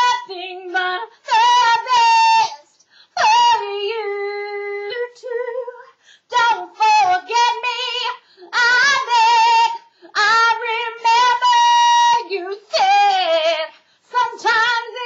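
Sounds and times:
woman singing unaccompanied: 0:00.0 - 0:15.0.

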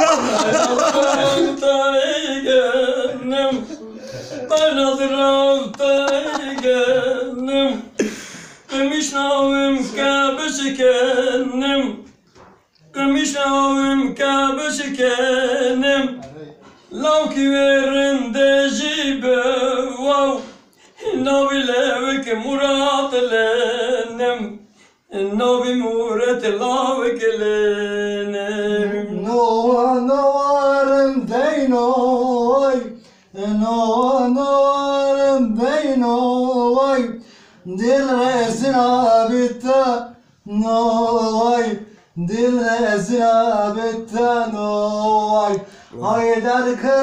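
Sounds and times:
men singing unaccompanied duet: 0:00.0 - 0:12.2, 0:12.9 - 0:16.3, 0:16.9 - 0:47.0
breaths: 0:03.9 - 0:04.5, 0:08.0 - 0:08.7, 0:20.4 - 0:21.0, 0:24.6 - 0:25.1, 0:33.0 - 0:33.4, 0:37.2 - 0:37.7, 0:41.9 - 0:42.2, 0:45.6 - 0:46.0.

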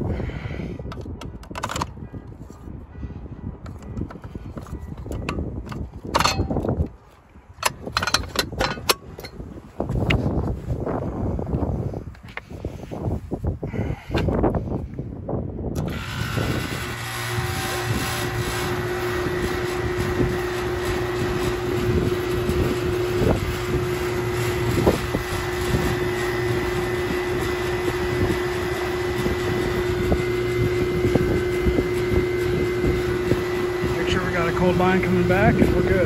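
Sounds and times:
compressor and fan humming: 0:15.6 - 0:36.0.

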